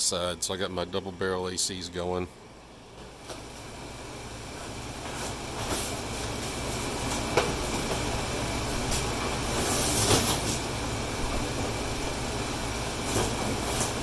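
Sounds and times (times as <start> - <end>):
air conditioner hum: 0.0 - 14.0.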